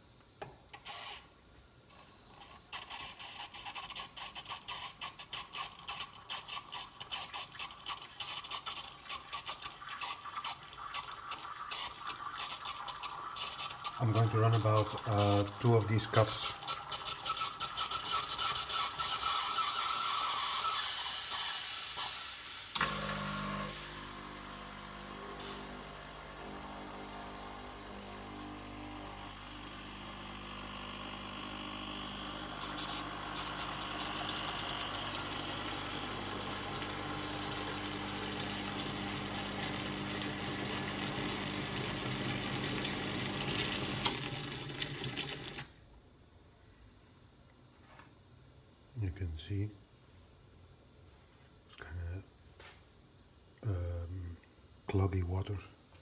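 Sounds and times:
espresso machine wand hissing: 0.8s - 1.3s, 2.0s - 44.4s
pump humming: 22.8s - 45.7s.

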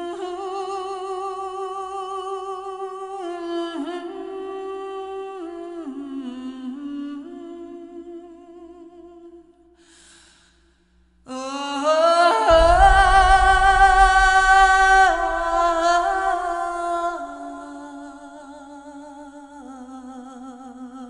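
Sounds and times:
low rumble: 12.5s - 18.5s.

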